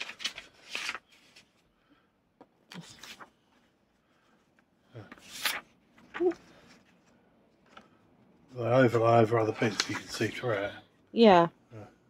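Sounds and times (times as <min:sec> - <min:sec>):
plastic sheets rustling: 0:00.0 - 0:01.7, 0:05.0 - 0:08.0.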